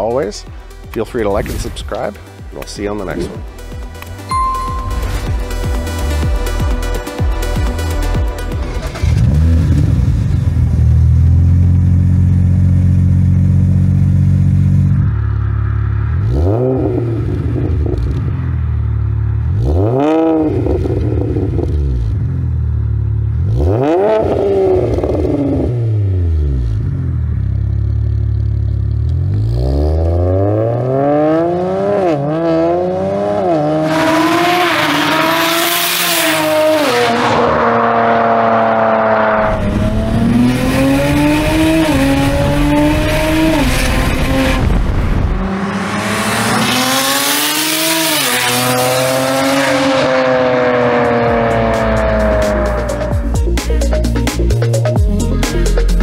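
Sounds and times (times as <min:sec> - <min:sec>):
car engine revving and upshifting: 0:16.2 - 0:18.3, 0:19.5 - 0:22.1, 0:23.4 - 0:26.8, 0:29.0 - 0:53.3.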